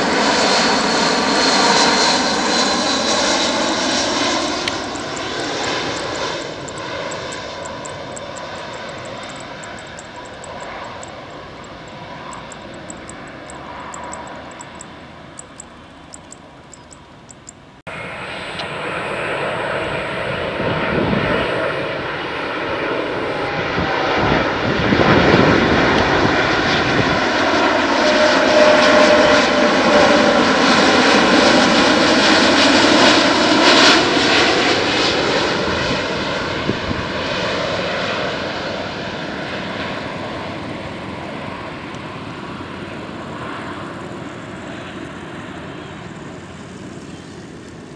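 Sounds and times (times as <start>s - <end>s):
jet engines roaring and whining: 0.0s - 47.9s.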